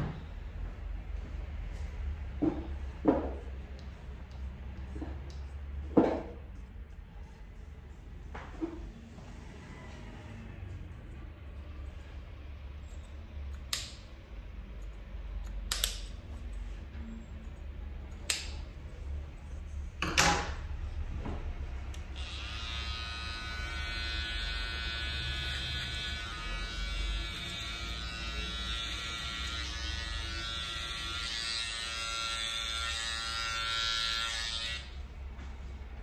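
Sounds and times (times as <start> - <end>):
electric hair clipper buzzing: 22.0 - 35.0.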